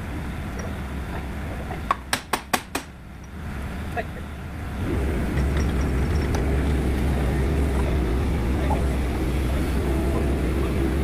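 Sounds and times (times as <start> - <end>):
excavator diesel engine droning: 3.0 - 11.0.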